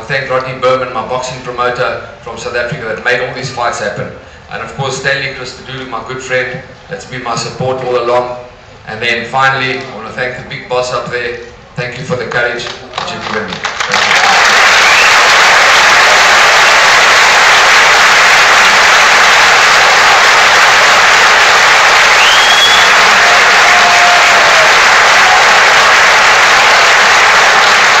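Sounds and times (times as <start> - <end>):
large crowd applauding: 12.3 - 28.0.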